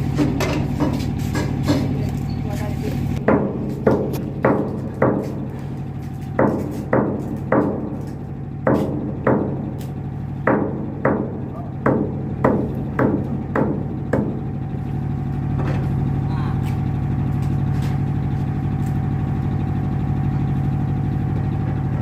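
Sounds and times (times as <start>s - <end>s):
boat engine idling hum: 0.0s - 22.0s
sharp hammer-like knocks: 3.2s - 5.5s, 6.4s - 9.8s, 10.4s - 14.5s.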